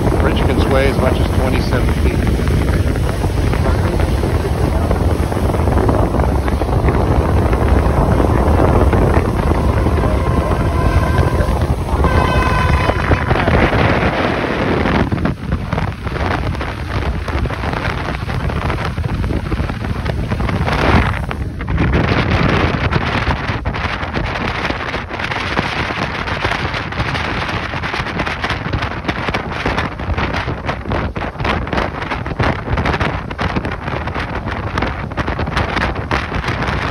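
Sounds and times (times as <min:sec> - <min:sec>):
ferry engine rumble: 0:00.0 - 0:23.8
water rushing past hull: 0:00.0 - 0:36.9
wind buffeting microphone: 0:00.0 - 0:36.9
short pitched tones: 0:07.6 - 0:14.6.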